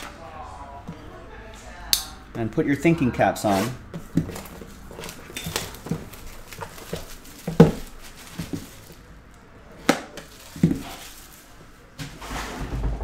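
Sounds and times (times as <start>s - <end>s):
plastic wrap crinkling: 3.5s - 11.9s.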